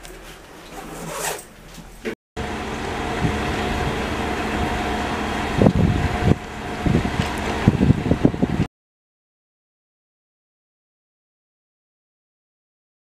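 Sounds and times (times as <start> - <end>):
diesel locomotive engine idling: 2.4 - 8.7.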